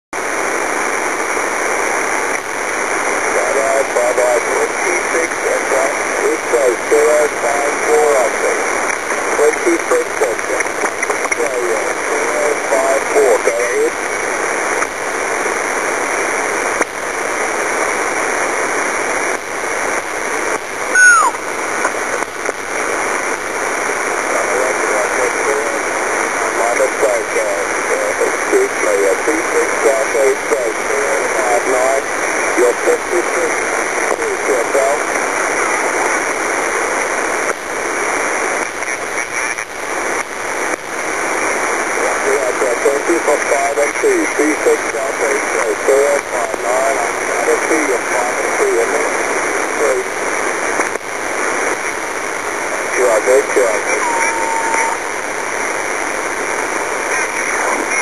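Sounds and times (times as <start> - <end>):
radio static hiss: 0.2 - 58.0
whistle gliding down in pitch: 20.9 - 21.4.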